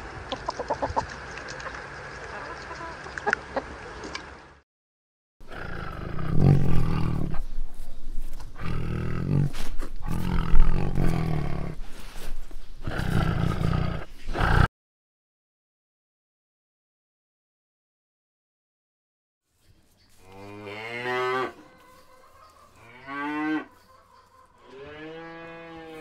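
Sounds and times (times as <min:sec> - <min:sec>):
hens clucking softly: 0:00.3 - 0:04.2, 0:21.6 - 0:23.0, 0:23.7 - 0:24.8
leopard cubs growling: 0:05.4 - 0:14.7.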